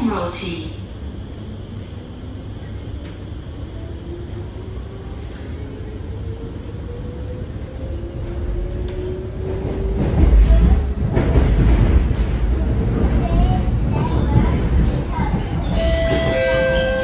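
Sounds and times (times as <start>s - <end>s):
train running rumble: 7.4s - 17.0s.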